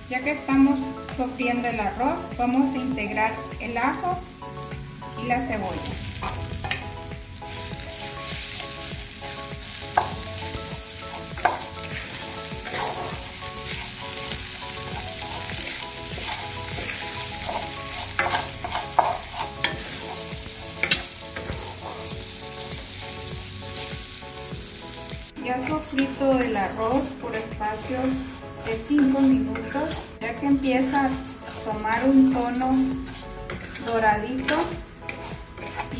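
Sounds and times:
rice sizzling in oil: 0.0 - 35.9
wooden spoon scraping a pot: 11.1 - 22.1, 25.6 - 35.9.

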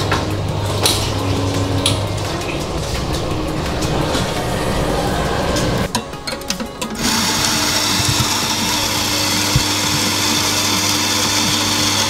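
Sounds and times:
coffee grinder grinding: 7.0 - 12.0.

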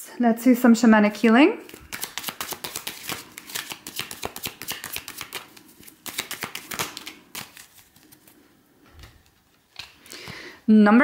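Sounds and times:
cards being shuffled: 1.6 - 8.4, 9.0 - 10.1.

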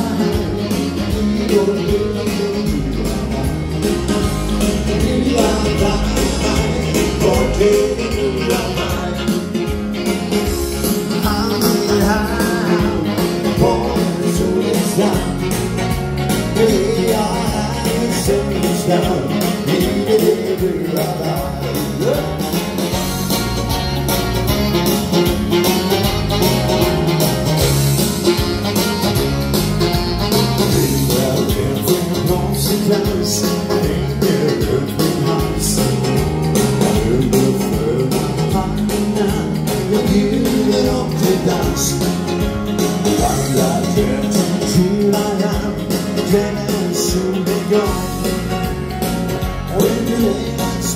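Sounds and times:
person singing: 0.0 - 9.8, 10.8 - 23.0, 30.3 - 42.2, 43.0 - 48.5, 49.6 - 50.9
live dance band over pa: 0.0 - 50.9.

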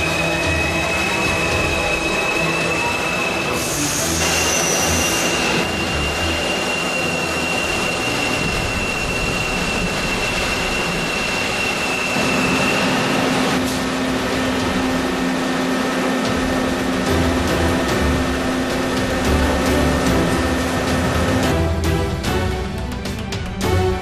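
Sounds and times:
lathe machining hiss: 0.0 - 19.3
thin high whine: 0.0 - 21.4.

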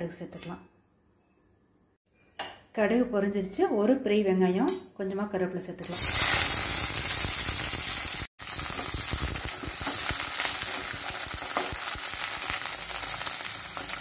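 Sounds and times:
food sizzling in hot oil: 5.8 - 14.0.

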